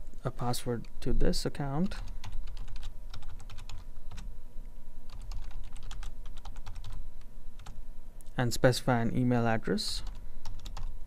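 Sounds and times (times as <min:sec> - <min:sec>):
keyboard keys clicking: 0:02.2 - 0:04.2, 0:05.1 - 0:07.0.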